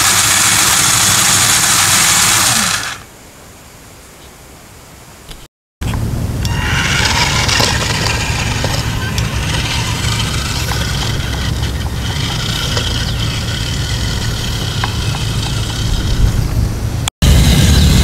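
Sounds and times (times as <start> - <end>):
toy car motor whining: 0.0 - 3.0, 6.4 - 16.4.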